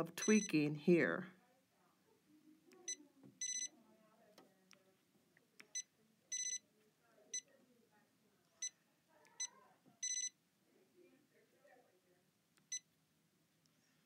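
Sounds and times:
electronic beeps: 2.9s - 3.7s, 5.8s - 6.6s, 10.0s - 10.3s.

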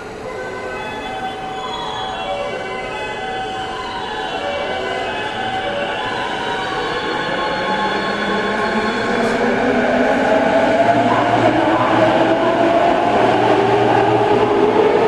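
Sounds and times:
electric train motors whining: 0.0s - 15.0s.

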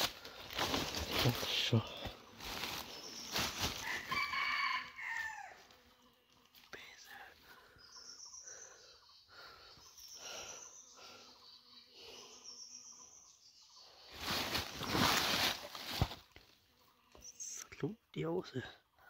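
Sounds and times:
rustling of dry leaves: 0.0s - 5.8s, 14.0s - 16.6s.

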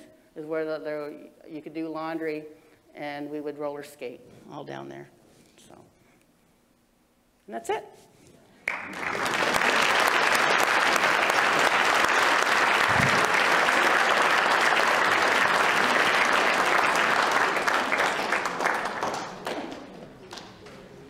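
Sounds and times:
audience applauding: 8.6s - 20.8s.

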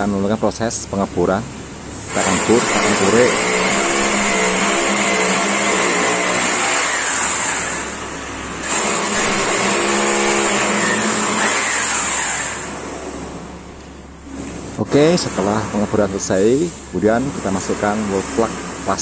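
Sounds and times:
hammer drill boring into wall: 2.1s - 13.4s.

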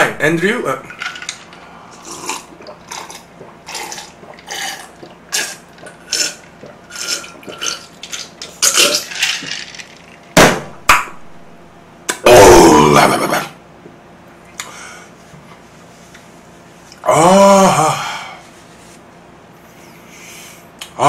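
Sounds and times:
mouth smacks and gulps: 2.2s - 7.9s.

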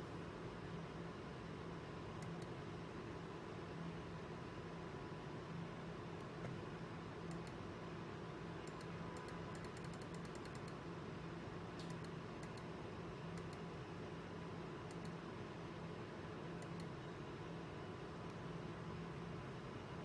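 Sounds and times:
steady low hum: 0.0s - 20.0s
computer mouse clicking: 2.2s - 2.6s, 7.3s - 7.6s, 8.6s - 10.8s, 11.8s - 12.7s, 13.3s - 13.7s, 14.8s - 15.2s, 16.6s - 17.0s.

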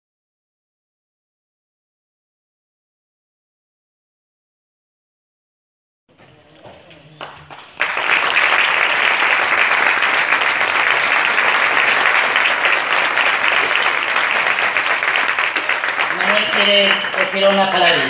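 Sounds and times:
audience applauding: 6.7s - 18.0s.

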